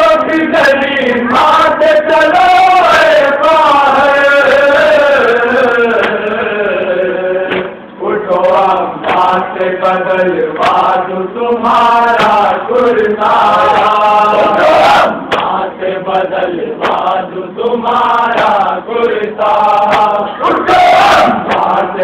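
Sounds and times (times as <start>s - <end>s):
man chanting over loudspeaker: 0.0s - 22.0s
chest-beating slaps: 6.0s - 6.2s, 7.5s - 7.8s, 9.0s - 9.4s, 10.6s - 10.9s, 12.2s - 12.4s, 14.4s - 15.6s, 16.8s - 17.1s, 19.8s - 20.2s, 21.1s - 21.8s.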